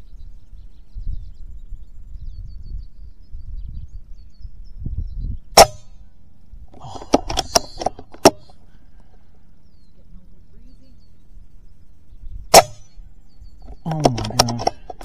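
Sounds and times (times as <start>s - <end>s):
air rifle shot crack: 5.5s - 6.0s, 12.5s - 13.0s
clicks and rattles: 7.0s - 8.6s, 13.6s - 15.0s.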